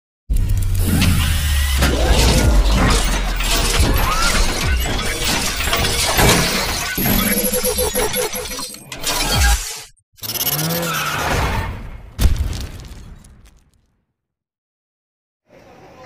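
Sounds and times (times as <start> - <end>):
music: 0.3 - 7.4
crashing shattering hits: 1.8 - 7.0.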